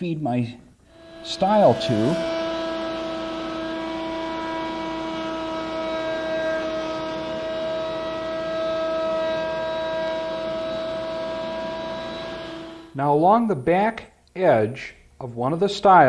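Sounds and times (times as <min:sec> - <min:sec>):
router whining cutting wood: 0:00.8 - 0:13.0.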